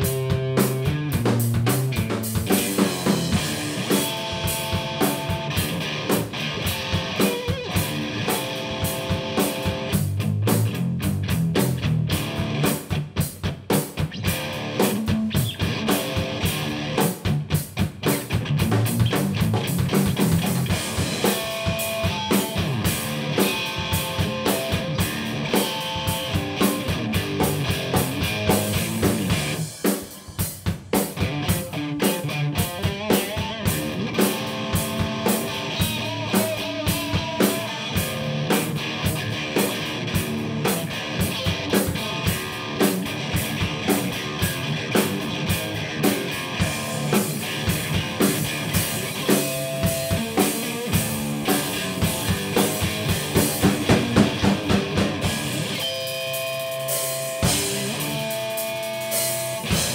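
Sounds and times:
bass guitar: 0.0 - 59.9
drum kit: 0.0 - 59.9
guitar: 0.0 - 59.9.

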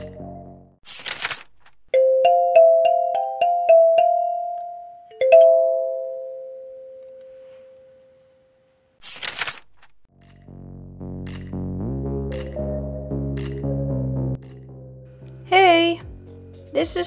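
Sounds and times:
synth music: 10.4 - 17.0.

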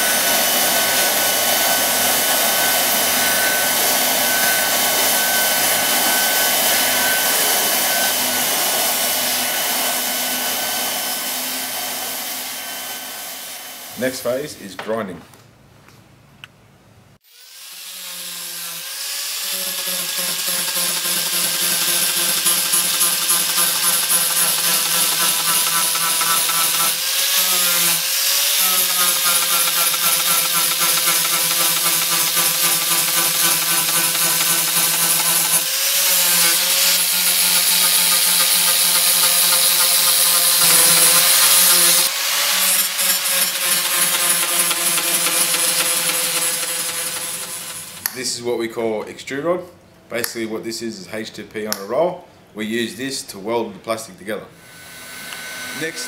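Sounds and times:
angle grinder grinding plastic: 19.3 - 48.1.

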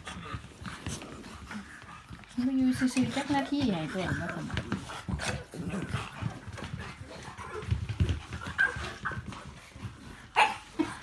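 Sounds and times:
dogs scuffling: 0.0 - 11.0
small dogs yipping: 8.3 - 9.4, 10.3 - 11.0.

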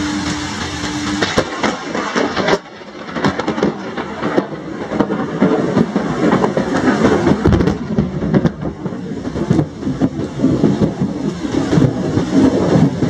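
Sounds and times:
heavy rain on hard surfaces: 0.0 - 13.0.

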